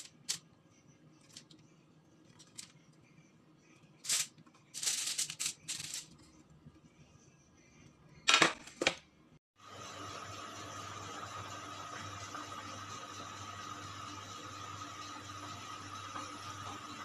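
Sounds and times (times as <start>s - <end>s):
aluminium foil crinkling: 4.1s - 6.1s.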